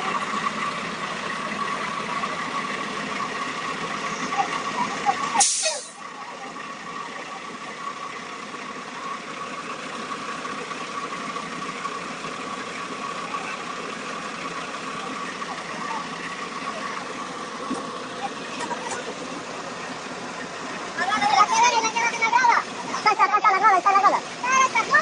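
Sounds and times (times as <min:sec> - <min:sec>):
faint voices: 0:00.0 - 0:09.4, 0:12.3 - 0:25.0
bus engine whining: 0:00.0 - 0:25.0
short sharp hiss: 0:05.4 - 0:06.0.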